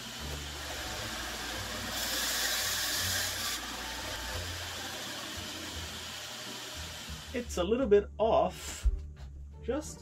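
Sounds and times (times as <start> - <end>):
band saw running: 0.0 - 7.5.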